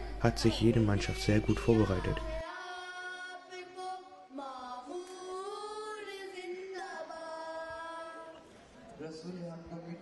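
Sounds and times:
boys chanting into microphones: 0:00.0 - 0:04.0.

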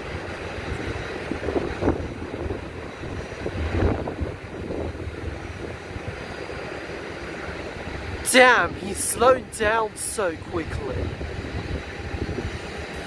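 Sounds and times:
wind buffeting microphone: 0:00.0 - 0:06.4, 0:10.8 - 0:13.0.

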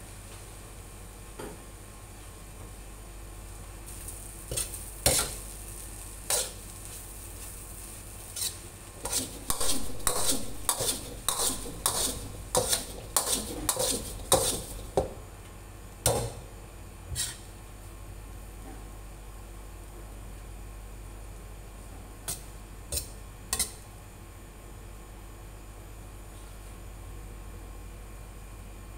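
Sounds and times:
metal ladle scraping a wok: 0:06.3 - 0:06.6, 0:08.2 - 0:15.0, 0:17.1 - 0:17.5.

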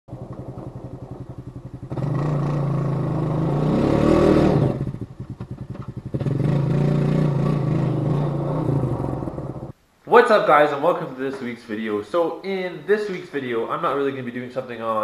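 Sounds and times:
atv engine revving: 0:00.1 - 0:09.7.

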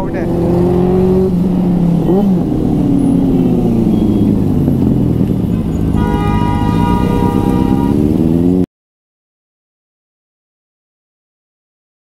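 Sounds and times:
motorcycle engine revving: 0:00.0 - 0:08.7
vehicle horn: 0:05.5 - 0:08.6.

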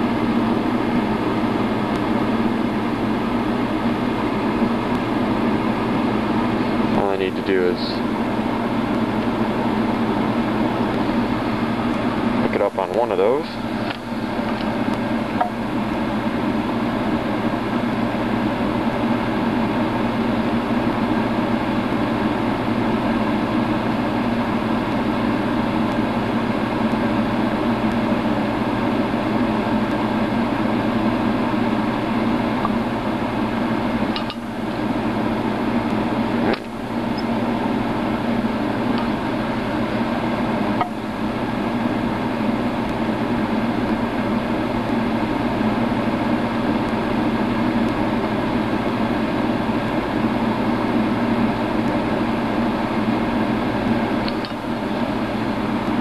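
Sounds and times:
steady machine drone: 0:00.0 - 0:56.0.

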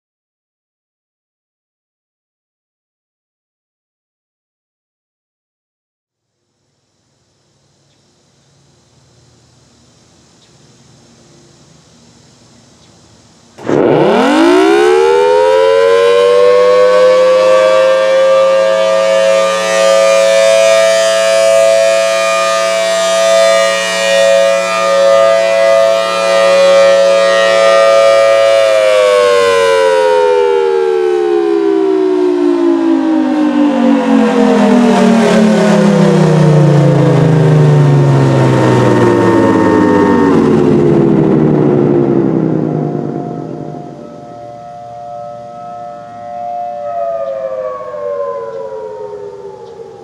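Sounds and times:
rotating warning siren: 0:13.5 - 0:50.0.

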